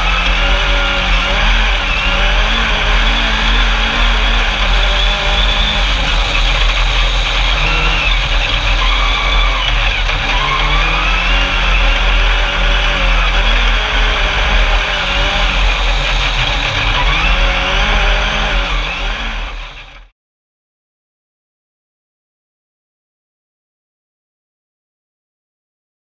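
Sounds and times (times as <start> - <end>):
buggy engine revving: 0.0 - 20.1.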